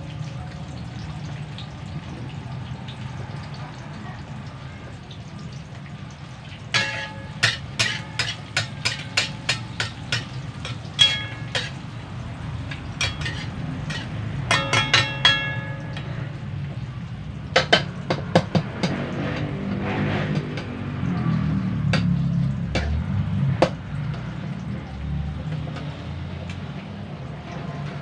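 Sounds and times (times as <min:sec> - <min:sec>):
metal utensil clinking in wok: 0:06.7 - 0:16.4.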